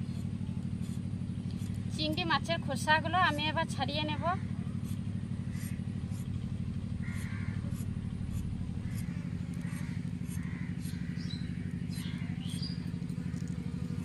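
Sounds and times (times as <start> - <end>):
motor with pulsing drone: 0.0 - 14.0
faint bird calls: 4.0 - 14.0.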